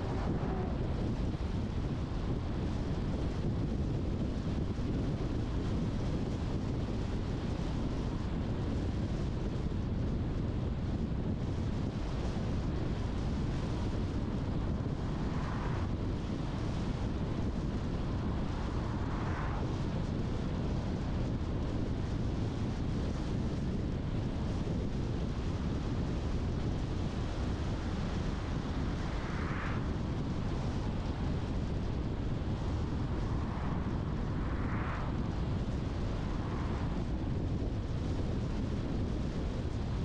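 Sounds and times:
car driving rumble: 0.0s - 3.7s
wind: 0.0s - 40.0s
tyre and road noise: 28.2s - 38.0s.

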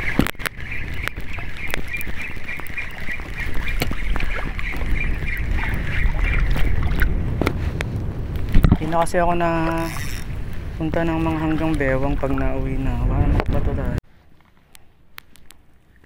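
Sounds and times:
wind rumbling on microphone: 0.0s - 14.0s
rod handling clicks: 9.6s - 10.3s
fishing reel whirring: 9.7s - 10.3s.

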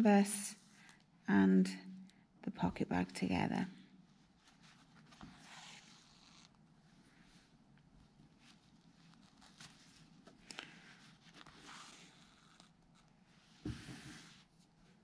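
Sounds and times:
rustling of cloth: 4.0s - 15.0s
thread drawn through cloth: 4.4s - 6.6s, 8.4s - 14.6s.

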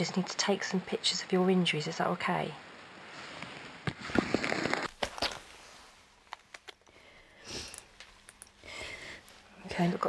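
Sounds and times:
fabric rustling: 3.1s - 6.6s
person sniffing: 7.4s - 7.8s.

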